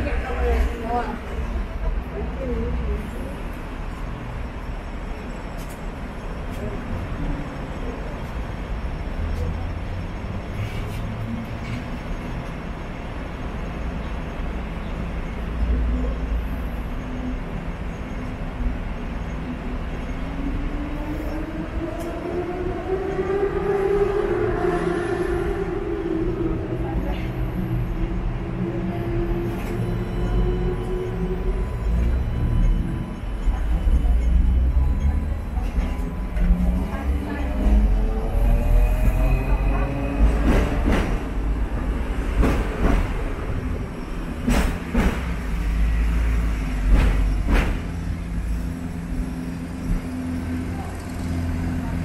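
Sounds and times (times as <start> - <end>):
tram motor whining: 11.4 - 52.0.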